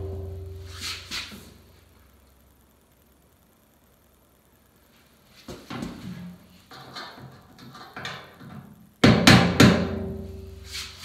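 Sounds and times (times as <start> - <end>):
hammer striking metal tank: 0.0 - 0.8, 9.0 - 10.3
metal tank ringing: 0.0 - 0.8.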